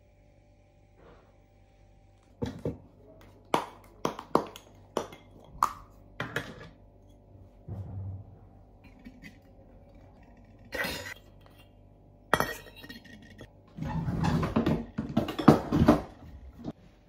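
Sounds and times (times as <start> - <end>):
steel bowls clinking and clattering: 8.8 - 13.5.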